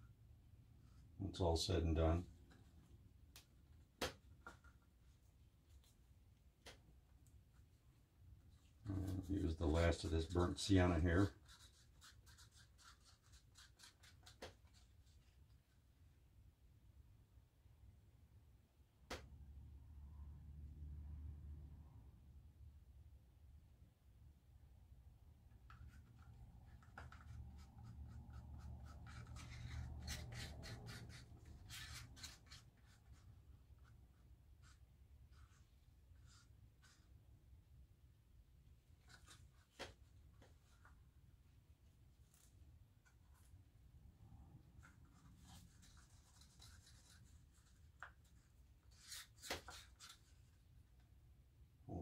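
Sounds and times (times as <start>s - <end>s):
stick scraping and tapping: 25.6s - 33.2s.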